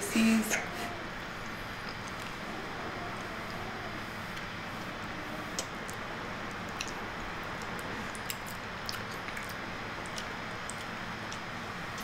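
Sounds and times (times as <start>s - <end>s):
mouth clicks and lip smacks: 1.8s - 2.4s, 5.5s - 6.0s, 6.6s - 12.0s.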